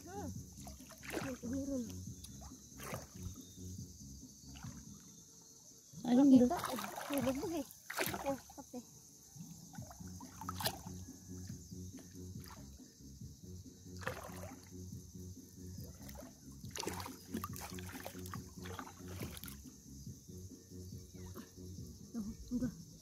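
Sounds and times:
hands splashing in shallow water: 0:00.6 - 0:01.6, 0:02.2 - 0:03.4, 0:06.6 - 0:08.6, 0:09.8 - 0:11.0, 0:14.0 - 0:14.7, 0:15.8 - 0:19.6.

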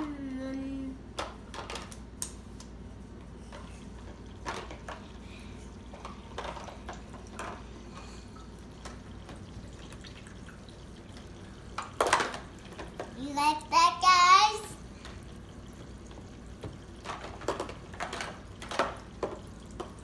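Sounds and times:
water dripping and splashing: 0:08.3 - 0:13.2, 0:14.8 - 0:20.0.

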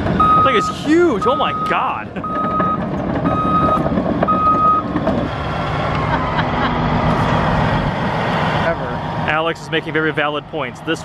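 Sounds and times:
diesel engine running: 0:00.0 - 0:11.0
backup alarm beeping: 0:00.2 - 0:04.9.

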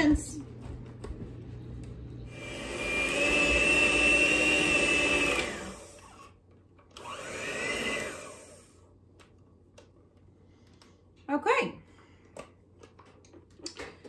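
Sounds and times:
electric hand mixer whirring: 0:02.2 - 0:08.8.

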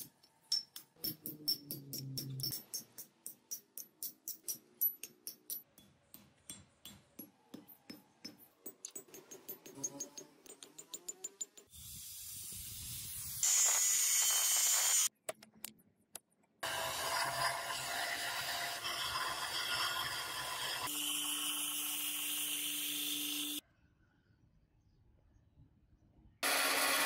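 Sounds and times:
hiss: 0:11.7 - 0:15.1
belt grinder grinding steel: 0:16.6 - 0:23.6.

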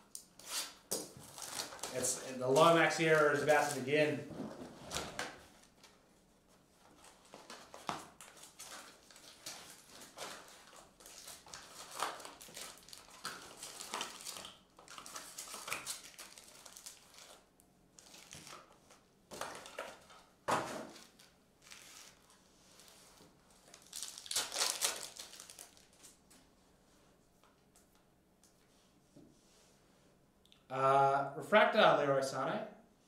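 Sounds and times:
card packs crinkling and rustling: 0:00.9 - 0:06.0, 0:06.8 - 0:26.5.

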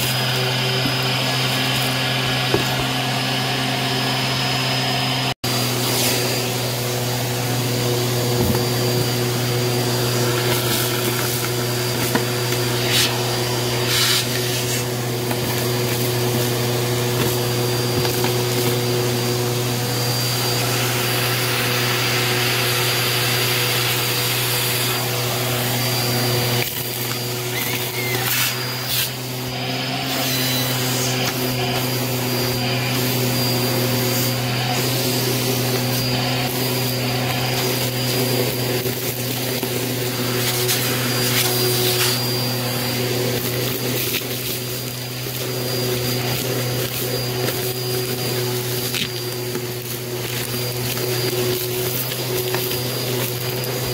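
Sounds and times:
vacuum cleaner motor hum and whine: 0:00.0 - 0:53.9
gritty debris crackling up hose: 0:42.7 - 0:53.9.

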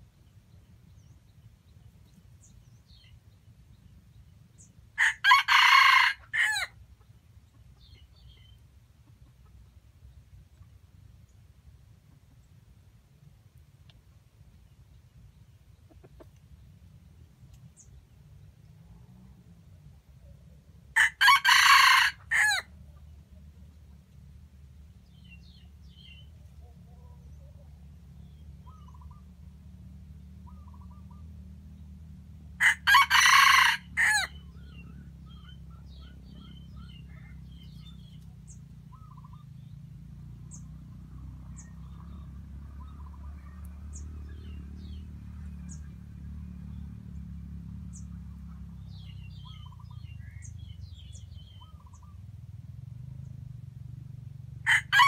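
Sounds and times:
small birds chirping: 0:00.0 - 0:04.9, 0:06.9 - 0:18.8, 0:24.8 - 0:29.5, 0:30.3 - 0:32.2, 0:34.2 - 0:53.7
low steady rumble: 0:00.0 - 0:55.0
rooster crowing: 0:05.0 - 0:06.7, 0:21.0 - 0:22.7, 0:32.6 - 0:34.4, 0:54.6 - 0:55.0.

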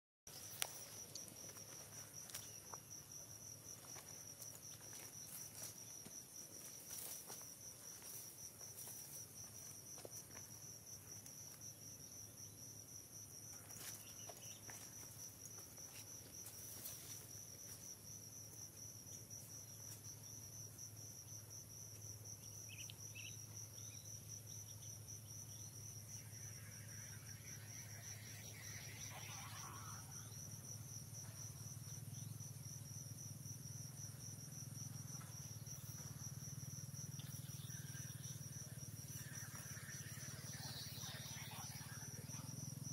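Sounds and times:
insects trilling: 0:00.3 - 0:42.9
low hum: 0:25.4 - 0:30.9, 0:37.1 - 0:42.9.

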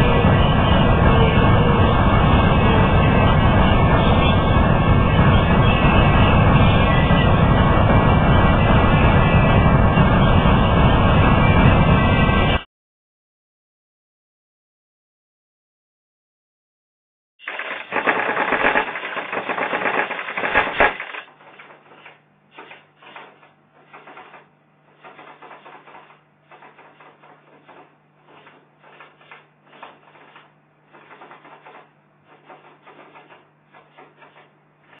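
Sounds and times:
steady low hum: 0:00.0 - 0:12.6.

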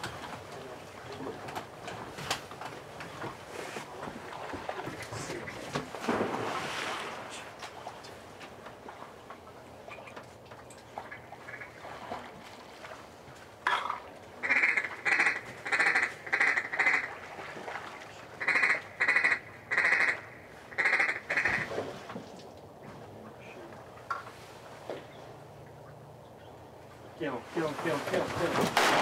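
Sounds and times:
duck quacking loudly: 0:14.4 - 0:17.1, 0:18.4 - 0:20.2, 0:20.8 - 0:21.6.

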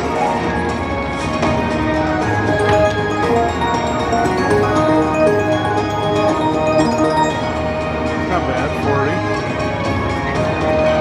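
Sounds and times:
slot machine electronic music: 0:01.6 - 0:09.5.

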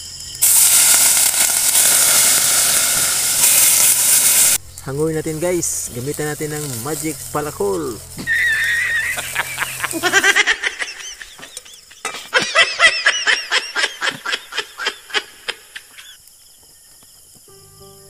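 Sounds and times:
man laughing hysterically: 0:08.3 - 0:16.2.

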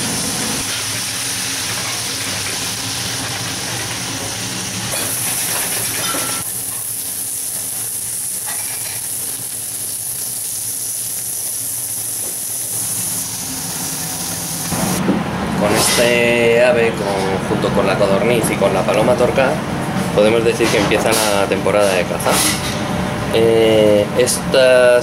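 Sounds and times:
food sizzling in a pan: 0:00.0 - 0:15.0.

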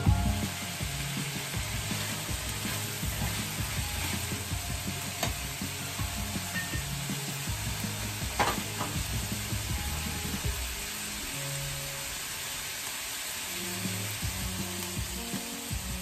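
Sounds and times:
meat sizzling in a pan: 0:00.0 - 0:16.0.

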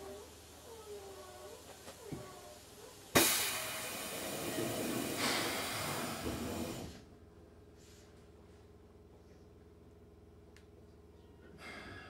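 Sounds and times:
compressed air hissing: 0:03.2 - 0:07.0.

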